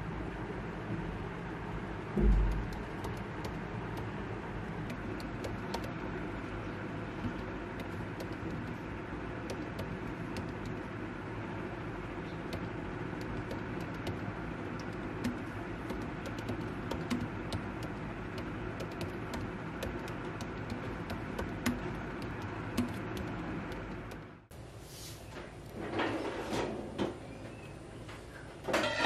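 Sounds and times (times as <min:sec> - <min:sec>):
steady rushing background noise: 0:02.2 - 0:24.5
laptop keyboard typing: 0:02.3 - 0:06.1, 0:07.1 - 0:10.9, 0:12.4 - 0:24.4.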